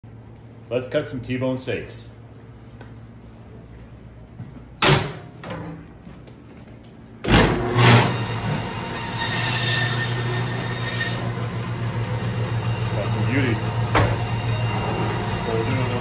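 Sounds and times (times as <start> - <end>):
band saw cutting meat: 7.6 - 16.0.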